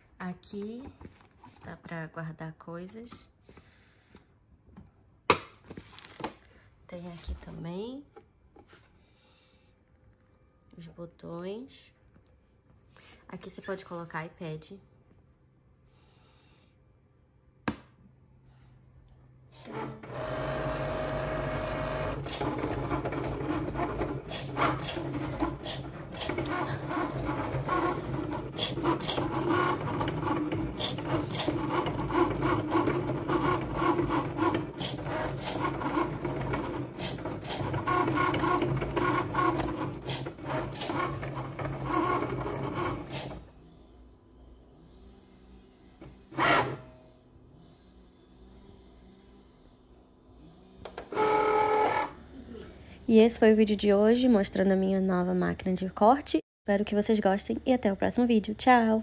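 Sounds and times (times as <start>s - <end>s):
cutting machine motors whirring: 19.6s - 52.3s.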